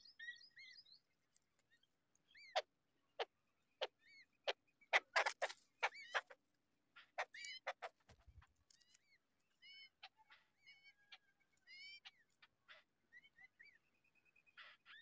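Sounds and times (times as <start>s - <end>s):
nestlings chirping: 5.0s - 6.4s.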